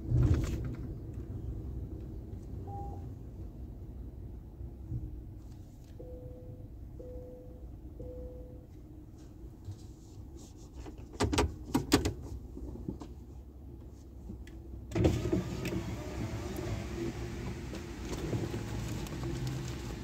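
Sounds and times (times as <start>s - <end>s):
car power window motor: 14.9s - 20.0s.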